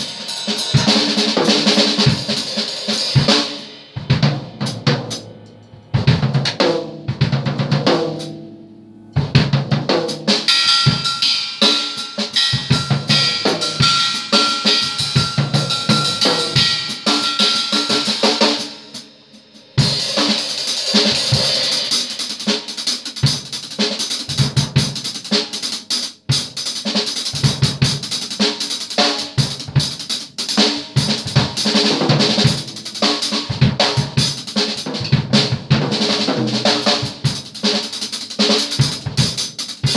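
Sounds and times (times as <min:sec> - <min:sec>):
drum kit played hard: 0:00.0 - 0:39.9
cymbals crashing: 0:07.8 - 0:22.0
high ringing note: 0:10.5 - 0:18.1.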